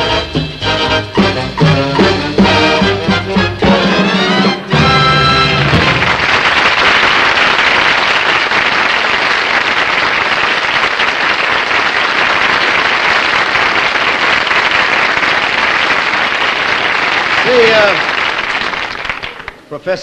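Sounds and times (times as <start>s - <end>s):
audience applauding: 4.1s - 19.7s.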